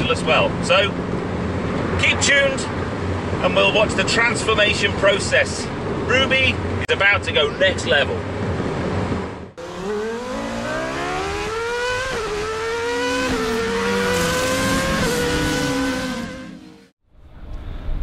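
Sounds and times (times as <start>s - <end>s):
wind and road noise: 0.0s - 18.0s
car engine accelerating: 9.6s - 16.9s.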